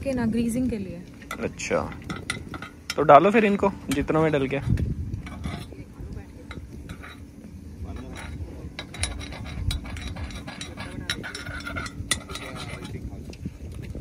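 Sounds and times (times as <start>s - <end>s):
metal spoon clinking on pan: 1.3s - 5.7s, 6.4s - 7.2s, 8.0s - 13.0s.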